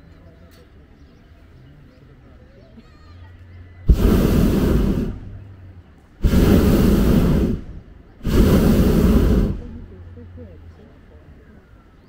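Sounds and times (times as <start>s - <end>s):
propane burner blasts: 3.8s - 10.2s.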